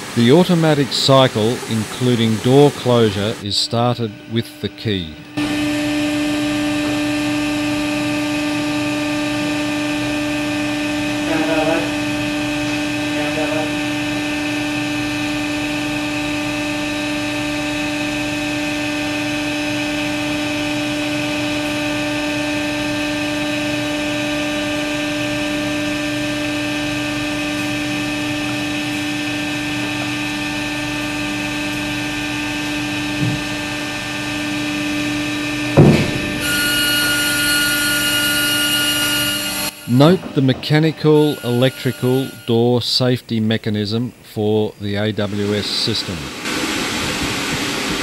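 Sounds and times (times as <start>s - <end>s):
machine drone humming: 0.0s - 48.0s
chamber door closing: 35.8s - 36.4s, 39.7s - 42.8s
loud clunk: 35.8s - 36.6s.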